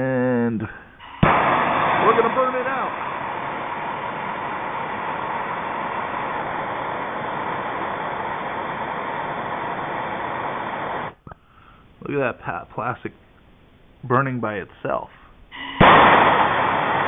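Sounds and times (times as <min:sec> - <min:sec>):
gas torch hissing: 0:01.0 - 0:11.2, 0:15.5 - 0:17.0.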